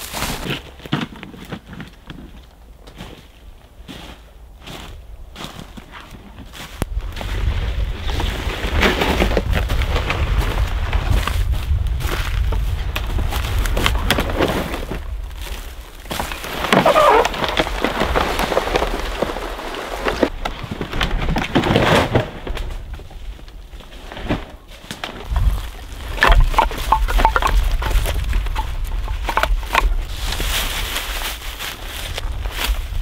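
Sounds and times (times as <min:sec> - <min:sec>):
footsteps through dry grass: 0:00.0 - 0:01.7, 0:02.8 - 0:20.3, 0:23.1 - 0:33.0
sticks knocking on ground: 0:24.2 - 0:31.0.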